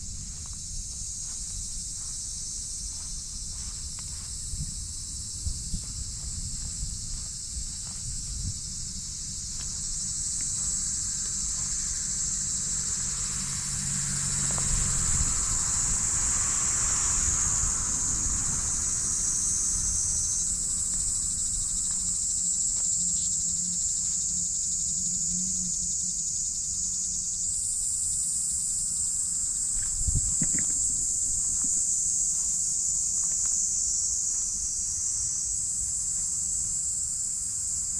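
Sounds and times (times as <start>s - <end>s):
insects chorus: 0.0s - 37.9s
vehicle passing: 12.1s - 20.7s.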